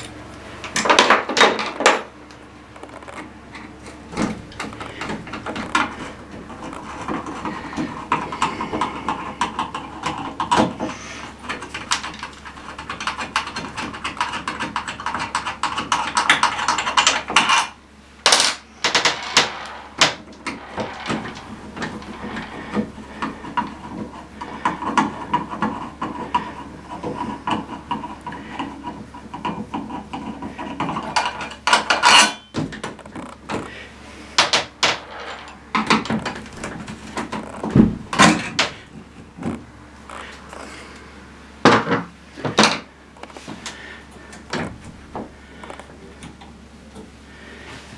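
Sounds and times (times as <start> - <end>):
sharp metal clicks and knocks: 2.8 - 33.6.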